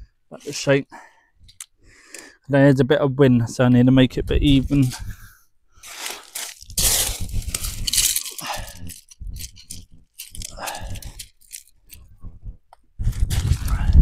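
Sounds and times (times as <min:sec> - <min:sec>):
wind buffeting microphone: 0:04.0 - 0:05.4, 0:06.6 - 0:11.2, 0:11.9 - 0:14.0.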